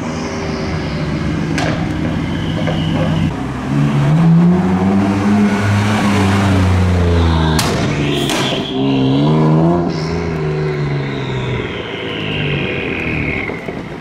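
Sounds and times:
car engine accelerating: 0:00.0 - 0:13.9
exhaust cracks: 0:07.2 - 0:14.0.

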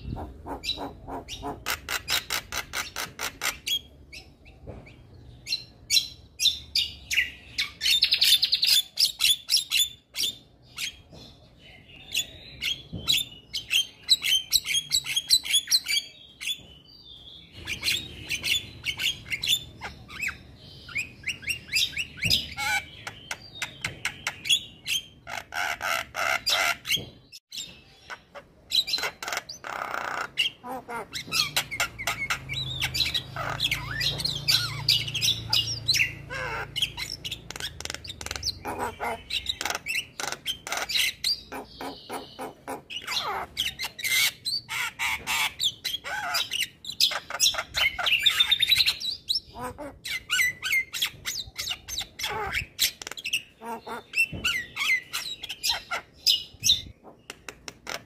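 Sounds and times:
bird squawking calls: 0:00.0 - 0:04.4, 0:28.0 - 0:57.2
bird chattering song: 0:00.0 - 0:58.0.

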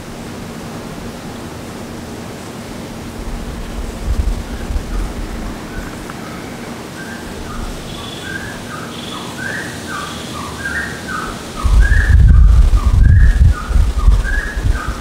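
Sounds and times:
faint high bird calls: 0:04.4 - 0:15.0
birds whistling: 0:04.5 - 0:15.0.

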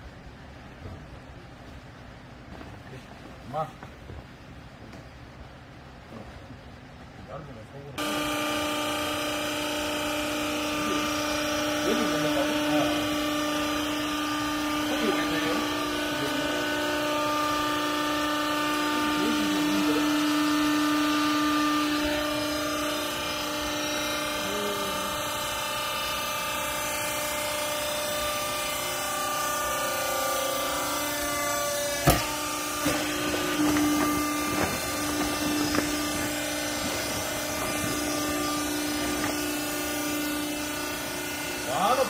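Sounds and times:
hydraulic power unit humming: 0:00.0 - 0:42.0
sharp knocks: 0:31.9 - 0:39.6.

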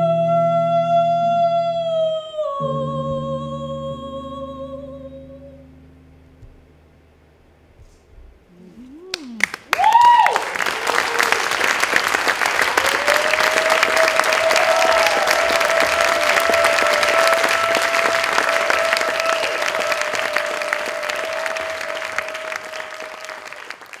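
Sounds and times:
steady held tone: 0:00.0 - 0:09.4
audience applauding: 0:09.1 - 0:24.0.

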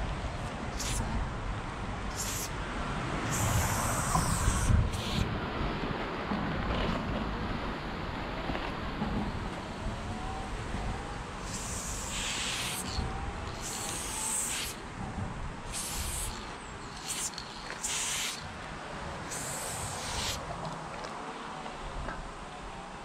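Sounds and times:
spray paint can hissing: 0:00.7 - 0:01.1, 0:02.1 - 0:02.5, 0:03.2 - 0:05.3, 0:11.4 - 0:14.8, 0:15.6 - 0:18.5, 0:19.3 - 0:20.5.

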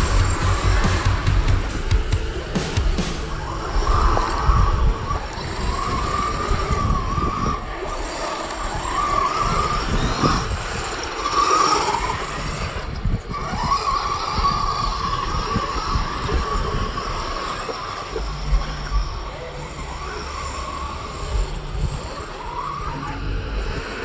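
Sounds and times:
rc car motors whining: 0:03.4 - 0:24.0.

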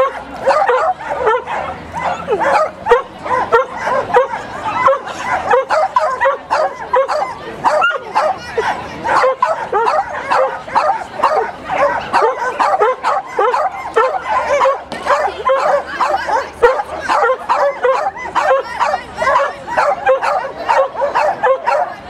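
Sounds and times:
dog barking and yipping: 0:00.0 - 0:22.0.

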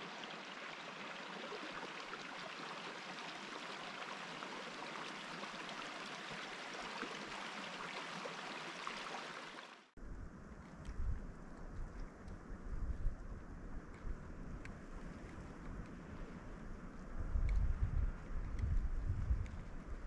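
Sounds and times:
river water rushing: 0:00.0 - 0:09.9.

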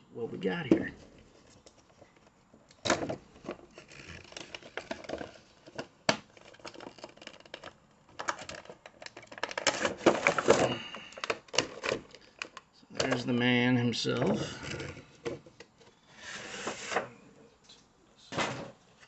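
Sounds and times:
packaging crinkling: 0:01.4 - 0:12.7.

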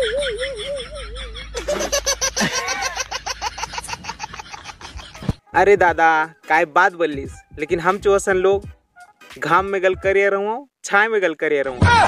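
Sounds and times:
people laughing: 0:00.0 - 0:05.3.

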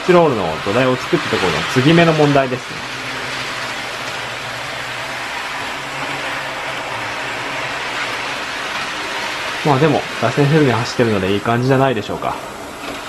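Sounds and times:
model train whirring on rails: 0:00.0 - 0:13.0.

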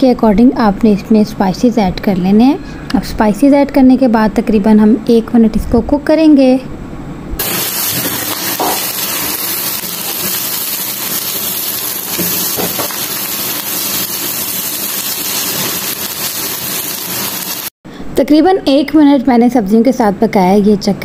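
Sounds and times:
vegetables sizzling in hot oil: 0:07.4 - 0:17.8.

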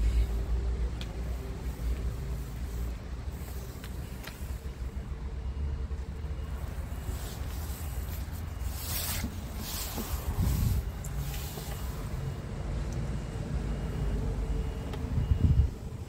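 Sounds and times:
wind buffeting microphone: 0:10.1 - 0:11.0, 0:15.1 - 0:16.0.

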